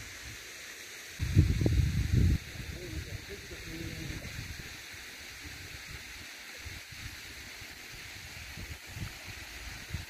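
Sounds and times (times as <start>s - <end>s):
steady high hiss: 0.0s - 10.0s
wind rumble on microphone: 1.2s - 4.8s, 8.0s - 10.0s.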